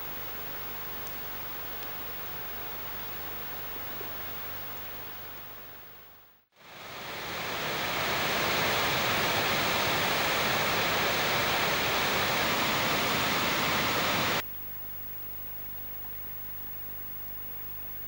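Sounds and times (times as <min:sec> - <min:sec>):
river water pouring over a weir: 0:06.6 - 0:14.4.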